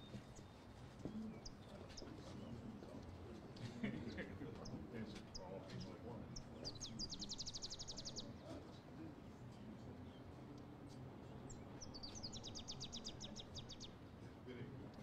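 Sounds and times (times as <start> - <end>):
outdoor background noise: 0.0 - 15.0
bird trilling: 11.8 - 14.0.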